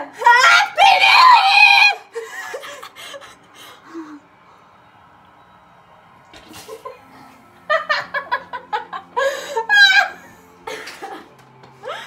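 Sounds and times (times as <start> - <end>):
girls laughing: 2.0 - 4.3, 6.5 - 12.0.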